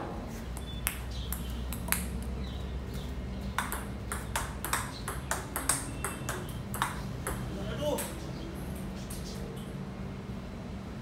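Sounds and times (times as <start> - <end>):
table tennis ball clicking: 0.6 - 2.2, 3.6 - 8.2.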